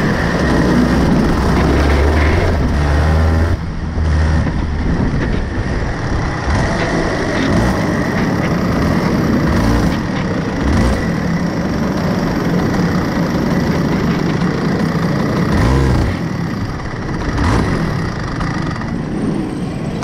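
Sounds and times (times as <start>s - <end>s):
kart engine idling roughly: 0.0s - 20.0s.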